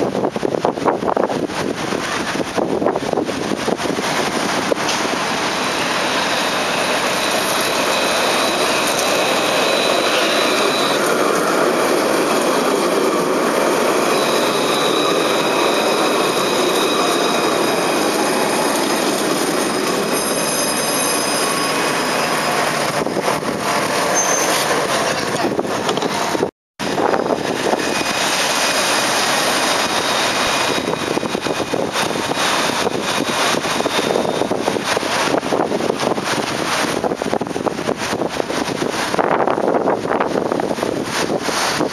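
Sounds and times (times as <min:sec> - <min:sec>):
electric tram rolling rumble: 0:00.0 - 0:41.9
high whines: 0:04.9 - 0:25.0.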